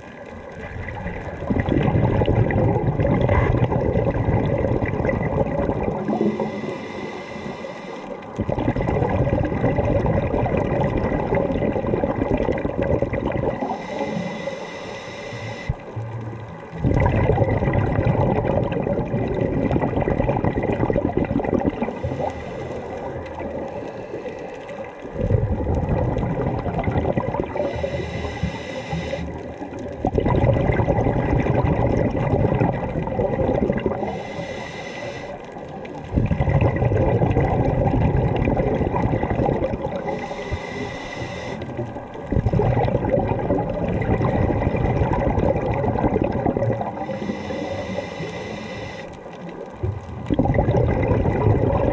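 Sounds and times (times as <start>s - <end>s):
gurgling regulator bubbles: 0.0s - 51.9s
regulator inhalation hiss: 6.1s - 8.2s, 13.6s - 15.9s, 21.9s - 23.1s, 27.6s - 29.4s, 34.0s - 35.6s, 40.0s - 41.8s, 47.0s - 49.3s.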